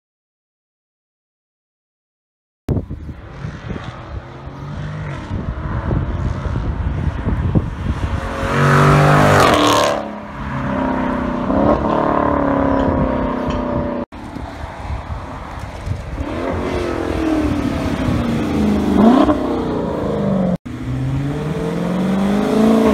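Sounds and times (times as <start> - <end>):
car engine accelerating: 16.2 - 22.9.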